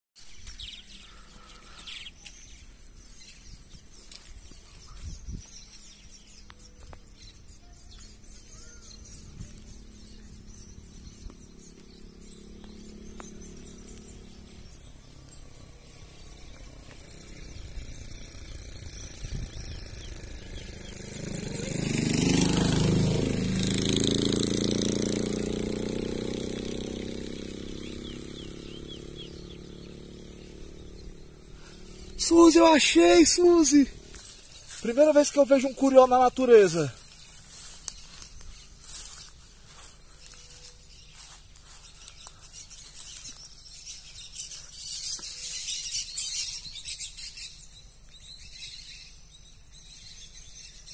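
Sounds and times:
faint bird chirps: 0.2 - 21.9
vehicle passing: 7.8 - 47.0.

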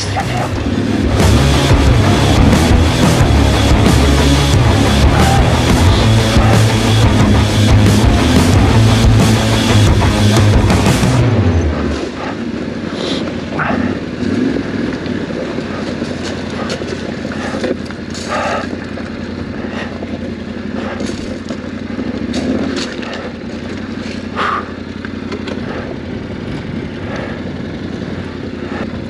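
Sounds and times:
motorcycle engine running: 0.0 - 29.0
stones knocking under tyres: 14.8 - 24.4.

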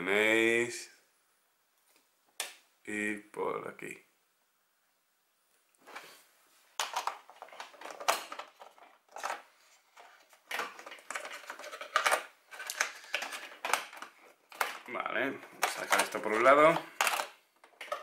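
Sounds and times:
plastic miniatures clattering: 6.8 - 18.0.

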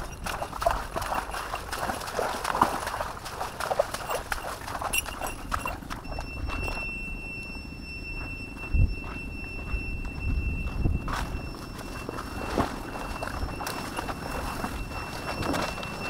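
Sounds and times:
steady high tone: 5.0 - 16.0.

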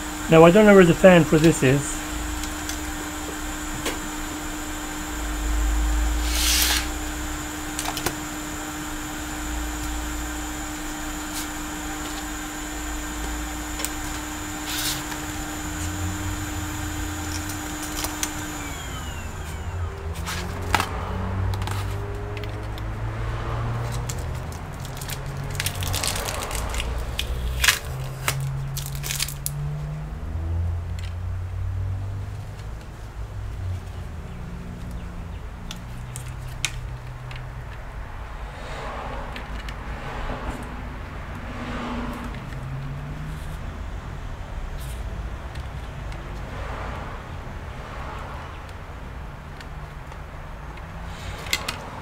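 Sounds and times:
faint high whine: 0.0 - 20.6
bench machine humming: 0.0 - 29.6
clicks and knocks of handling parts: 20.2 - 22.9, 35.7 - 37.8, 39.3 - 39.9, 44.8 - 46.5, 49.4 - 52.0.

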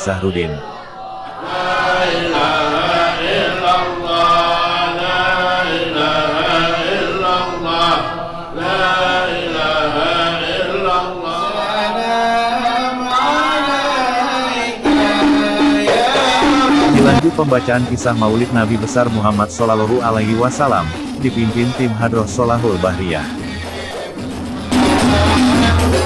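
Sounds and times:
man chanting into a microphone: 1.8 - 23.8.

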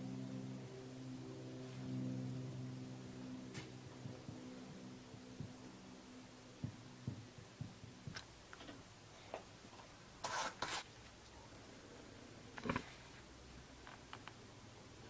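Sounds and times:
low hum: 0.0 - 8.5
iron scraping on paper: 10.2 - 10.9
rustling scrapes: 10.2 - 10.9.

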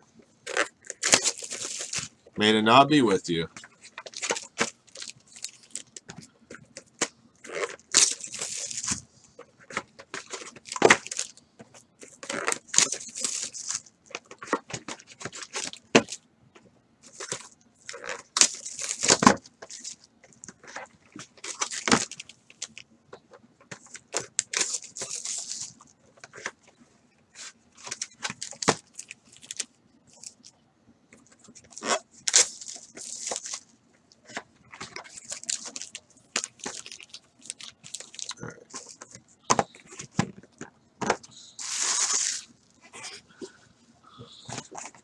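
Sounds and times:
foil packs crinkling: 0.4 - 2.1, 3.6 - 9.0, 9.6 - 11.4, 12.0 - 16.2, 17.0 - 22.8, 23.7 - 26.7, 27.4 - 30.5, 31.3 - 40.7, 41.5 - 42.8.

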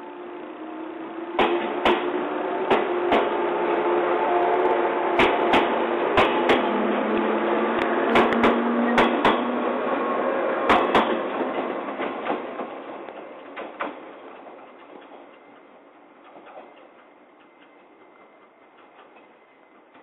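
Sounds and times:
electric train running hum: 0.0 - 20.0
train wheels clacking on rail joints: 1.4 - 3.6, 5.1 - 7.2, 7.8 - 9.7, 10.6 - 20.0.

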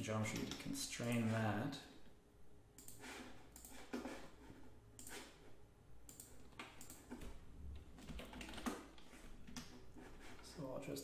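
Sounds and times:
computer mouse and keyboard clicks: 0.2 - 1.2, 2.8 - 4.3, 5.0 - 5.4, 6.0 - 10.5.

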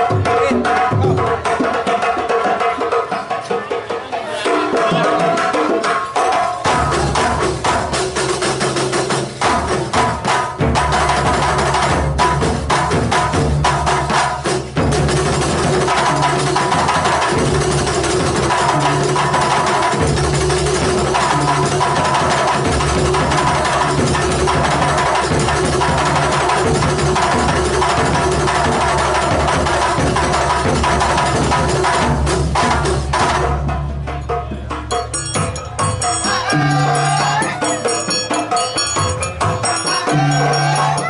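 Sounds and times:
percussion ensemble playing: 0.0 - 41.0
bass drums: 6.6 - 38.1
held tone: 34.9 - 41.0.

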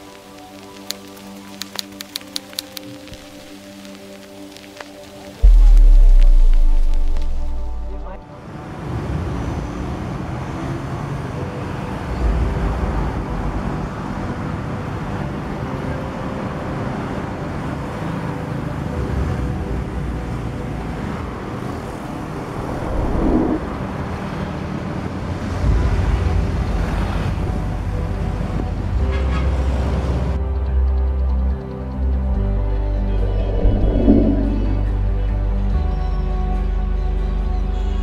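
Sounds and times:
low dark music drone: 5.3 - 10.6, 29.7 - 38.0
deep engine rumbles: 5.4 - 8.3, 21.9 - 24.0, 32.1 - 35.7
road traffic noise: 7.9 - 35.8.

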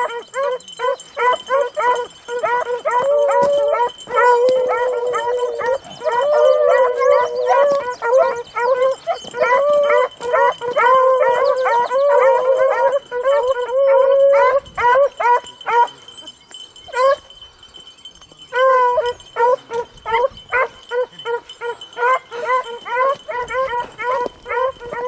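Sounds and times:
dogs baying: 0.0 - 17.5, 18.4 - 25.0.

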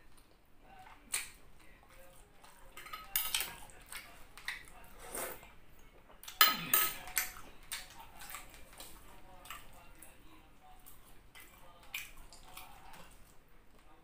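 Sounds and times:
metal spoon clinking on glass dish: 6.4 - 7.3.

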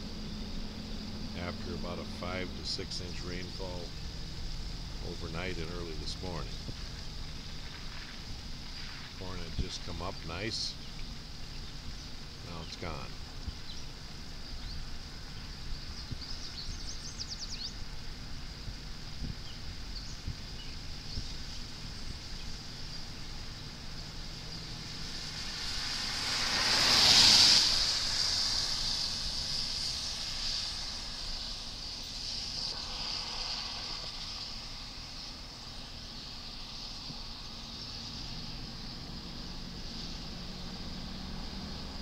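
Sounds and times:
outdoor hiss: 0.0 - 42.0
wind on microphone: 18.6 - 22.1
vehicle passing: 23.6 - 35.1, 38.0 - 42.0.

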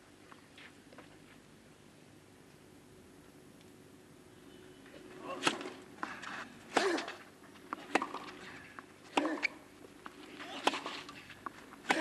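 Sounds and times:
tennis racquet hitting ball: 7.7 - 8.4, 10.4 - 11.2.

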